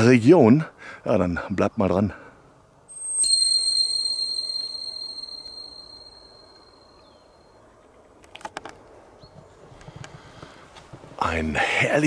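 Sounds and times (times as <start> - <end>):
bell-like ding: 2.9 - 6.9.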